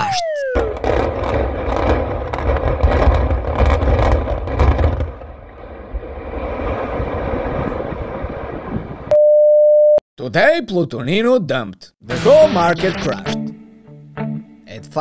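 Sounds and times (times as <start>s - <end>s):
building collapsing rumble: 0.4s - 9.1s
concrete cracks and crashes: 0.8s - 5.4s.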